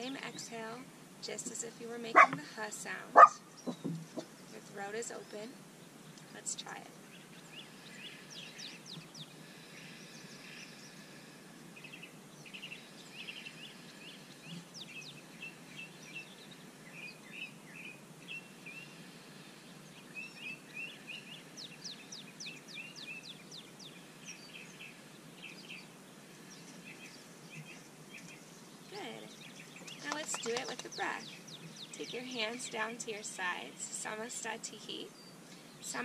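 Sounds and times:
birds chirping and trilling: 0.0 - 36.0
low background hiss: 0.0 - 36.0.

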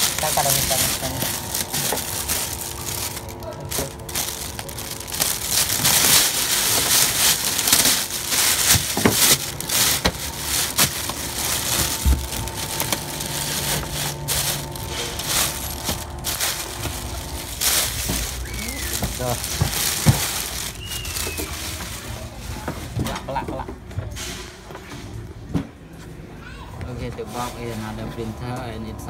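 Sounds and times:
plastic bag crinkling: 0.0 - 23.0.

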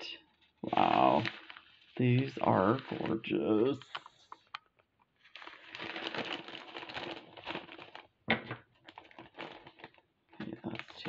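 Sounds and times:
plastic bag crinkling: 0.3 - 11.0.

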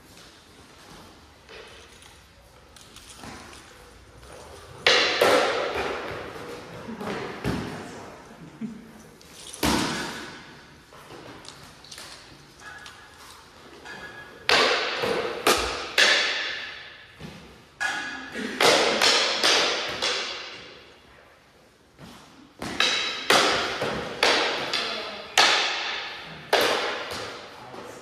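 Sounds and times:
wooden sticks clacking: 11.3 - 16.9.

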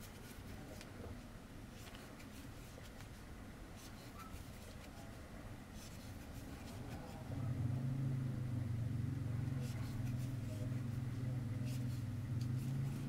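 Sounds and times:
low steady background hum: 0.0 - 13.0
crochet hook scratching yarn: 5.8 - 7.2, 9.4 - 13.0.

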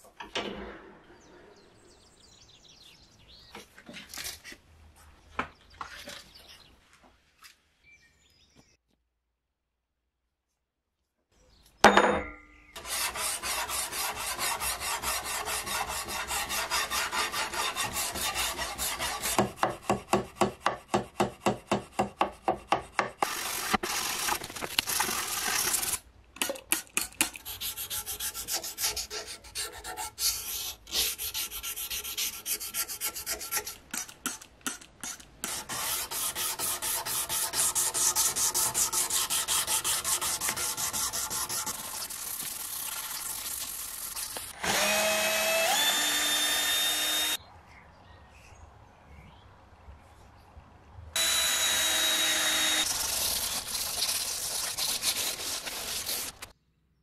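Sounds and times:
sanding steel blade by hand: 12.8 - 24.2, 27.2 - 44.6, 52.6 - 56.5
cordless drill whining: 44.6 - 47.4, 51.2 - 52.9.

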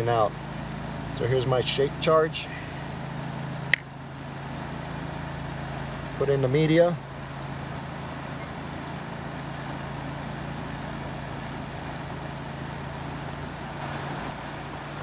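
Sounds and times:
motor humming: 0.0 - 15.0.

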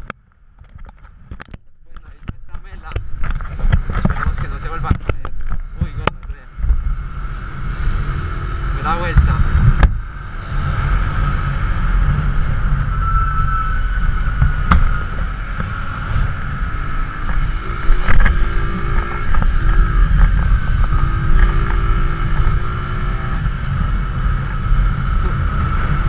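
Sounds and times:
sharp clicks and knocks: 0.0 - 6.8
wind rush on microphone: 0.0 - 26.0
motorcycle engine running: 1.9 - 26.0
short pitched tones: 12.6 - 23.6.

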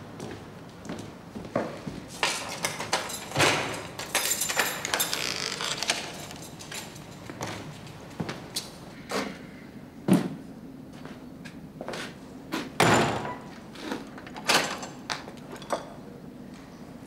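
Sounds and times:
heavy door and bolts clanking: 2.2 - 7.8, 12.8 - 13.5, 14.4 - 15.8
door slam ringing: 12.8 - 13.5.

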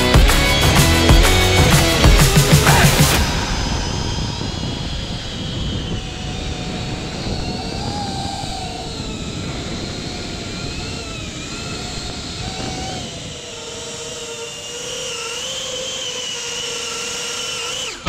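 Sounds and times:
wind rumble on microphone: 0.0 - 14.3
drone motors whining: 0.0 - 18.0.

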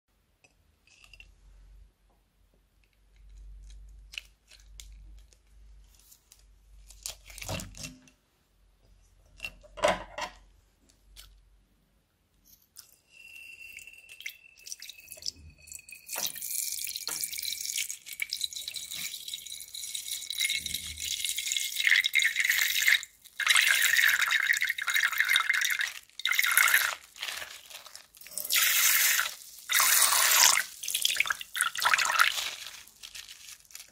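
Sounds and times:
plastic squishy crinkling and clicking: 2.8 - 8.2, 25.8 - 29.7, 30.6 - 33.9
water splashing in sink: 16.1 - 33.0
tap water running: 28.1 - 33.0.

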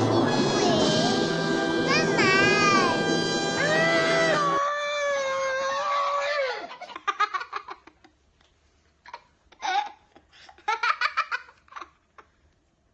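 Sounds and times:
young child giggling: 6.5 - 8.2, 9.1 - 12.4.

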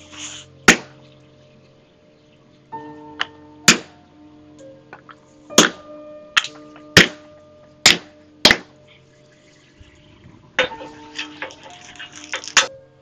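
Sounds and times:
hammer striking steel plate: 3.2 - 4.0, 5.5 - 8.8
metal clinks and scrapes: 10.6 - 12.8.

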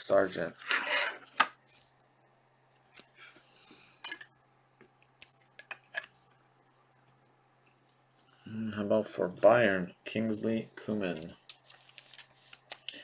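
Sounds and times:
cards rustling: 10.8 - 13.0.

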